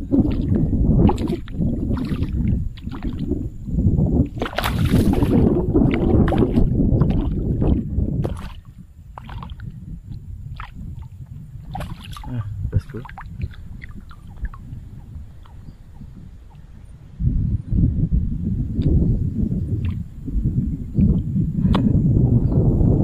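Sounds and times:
fish splashing in water: 0.2s - 3.4s, 4.3s - 9.7s, 10.5s - 12.4s, 13.0s - 16.7s.

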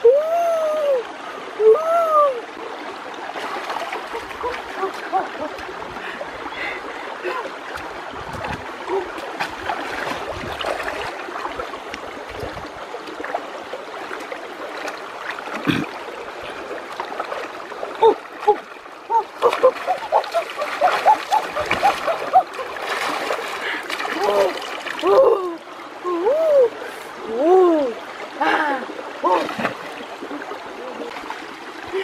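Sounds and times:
stream trickling: 0.0s - 32.0s
water splashing as person wades: 2.6s - 26.0s, 29.0s - 32.0s.

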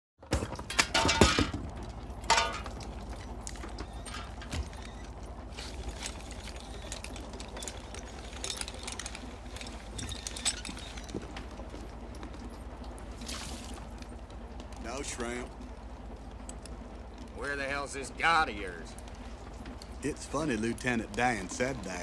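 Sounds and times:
junk clattering onto wooden deck: 0.2s - 6.4s
knocks and rustling: 0.2s - 14.8s
steady low rumble: 0.6s - 22.0s.

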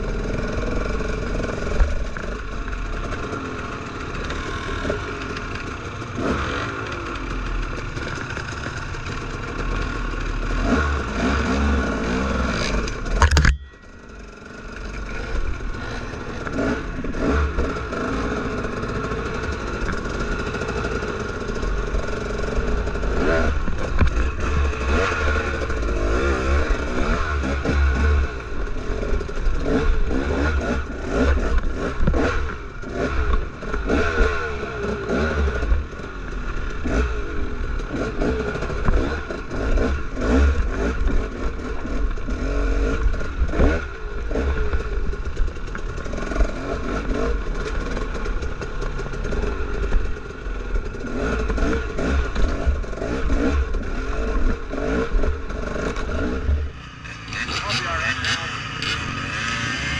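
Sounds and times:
dirt bike engine revving: 0.0s - 59.9s
rocks clattering and scraping: 12.5s - 13.8s.

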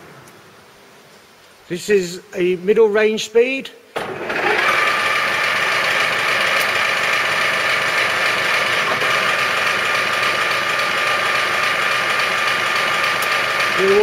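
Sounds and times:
boring machine running: 4.0s - 14.0s
high machine whine: 4.4s - 14.0s.

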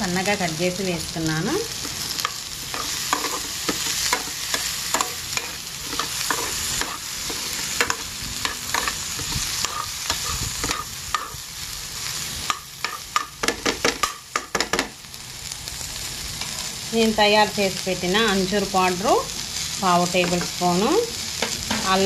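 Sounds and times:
frying sizzle: 0.0s - 22.0s
metal spatula scraping a pan: 1.7s - 11.4s.

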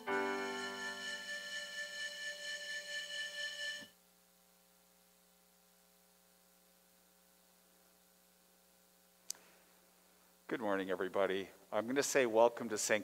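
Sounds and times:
held keyboard chord: 0.0s - 3.9s
faint electrical hum: 0.0s - 13.0s.

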